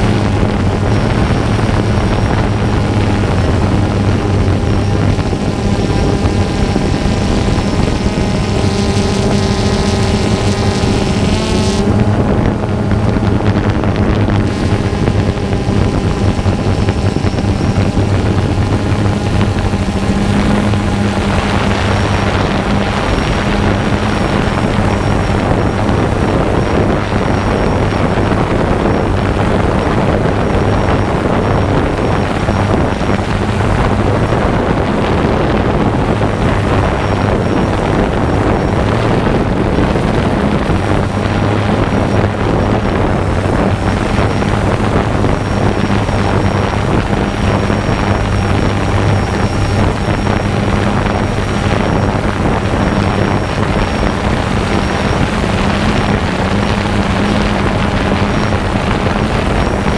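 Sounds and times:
drone propellers humming: 0:00.0 - 0:59.9
wind noise: 0:00.0 - 0:59.9.

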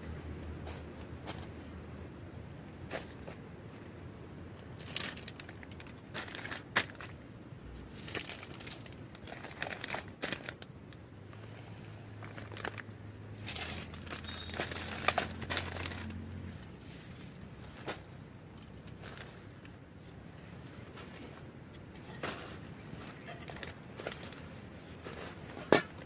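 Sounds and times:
plastic bags crinkling: 0:04.8 - 0:07.1, 0:08.0 - 0:10.8, 0:12.2 - 0:16.2.

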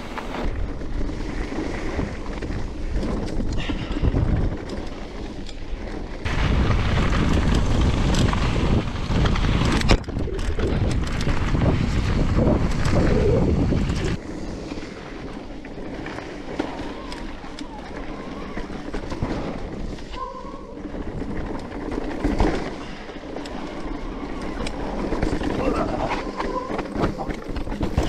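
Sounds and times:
wind buffeting microphone: 0:00.0 - 0:05.5, 0:06.2 - 0:14.4
bike tyre rumble and rattle: 0:00.0 - 0:28.0.

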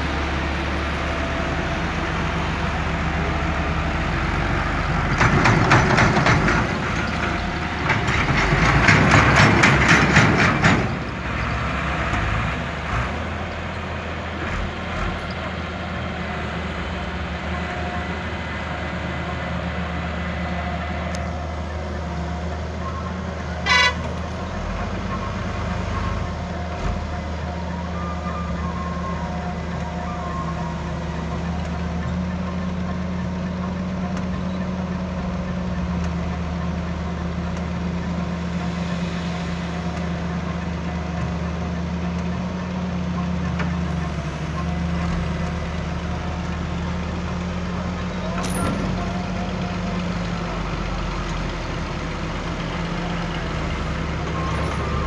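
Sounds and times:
heavy diesel engines droning: 0:00.0 - 0:55.0
loud horn toot: 0:23.6 - 0:24.2.

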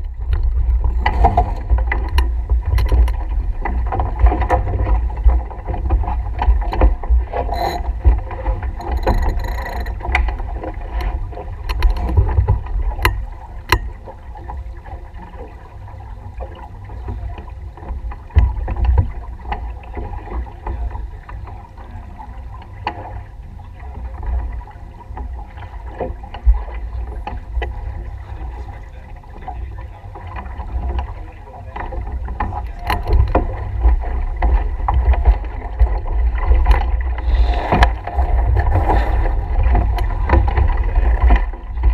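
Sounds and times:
clicks and knocks of lines and gear: 0:00.0 - 0:14.6, 0:17.4 - 0:21.5, 0:31.8 - 0:41.9
water noise of sailboat: 0:00.0 - 0:41.9
wind rumbling on microphone: 0:00.0 - 0:41.9.

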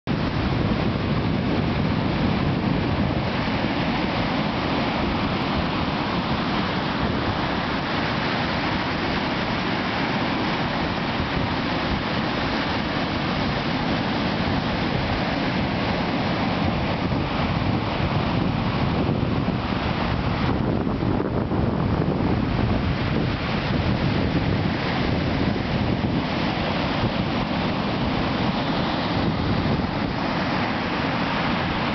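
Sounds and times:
surf breaking on beach: 0:00.1 - 0:31.9
wind buffeting microphone: 0:00.1 - 0:31.9.

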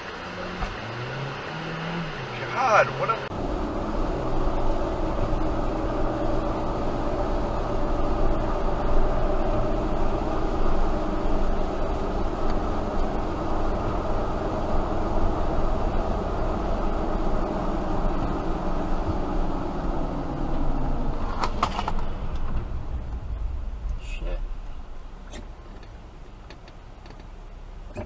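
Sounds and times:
car engine hum: 0:00.0 - 0:28.0
road and tyre rumble: 0:00.0 - 0:28.0.

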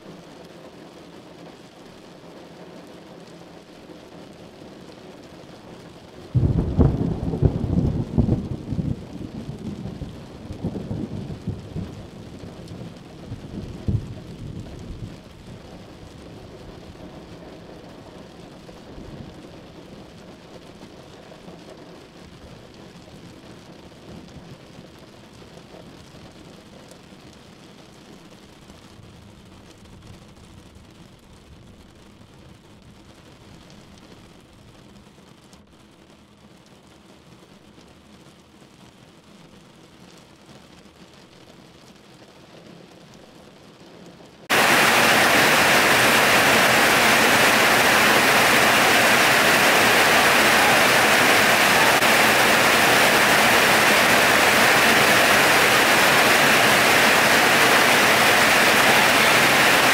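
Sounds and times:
heavy rain: 0:00.0 - 0:59.9
thunder rumbling: 0:06.3 - 0:15.4, 0:44.5 - 0:59.9.

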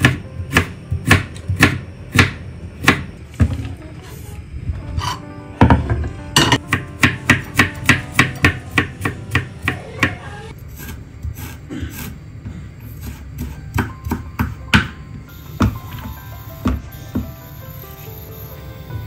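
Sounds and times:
knife chopping on cutting board: 0:00.0 - 0:03.1, 0:06.5 - 0:10.2, 0:13.0 - 0:15.0.

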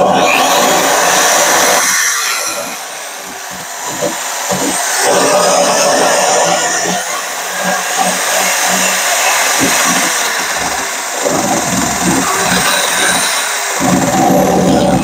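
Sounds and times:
electric drill grinding metal: 0:00.0 - 0:15.0.

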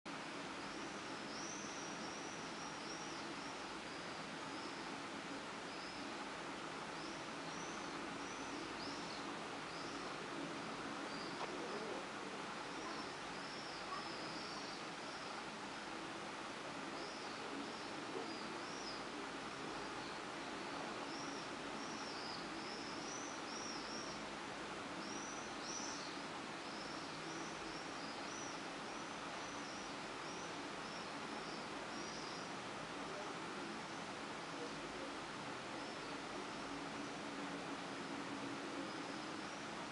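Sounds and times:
background hiss: 0:00.1 - 0:39.9
bird chirping: 0:00.6 - 0:05.0, 0:05.6 - 0:06.2, 0:06.9 - 0:10.2, 0:10.9 - 0:12.0, 0:12.6 - 0:15.4, 0:16.9 - 0:24.3, 0:25.0 - 0:32.6
faint high chirps: 0:11.0 - 0:15.5.

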